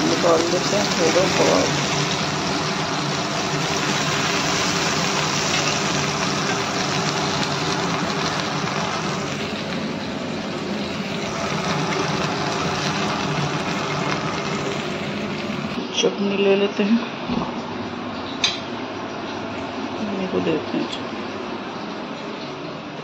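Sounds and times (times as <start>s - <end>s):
kebabs sizzling in hot oil: 0.0s - 15.8s.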